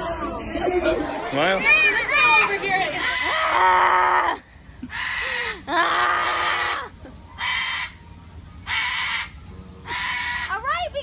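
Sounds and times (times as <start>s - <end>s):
cockatoo screeching: 2.9s - 8.0s, 8.6s - 10.7s.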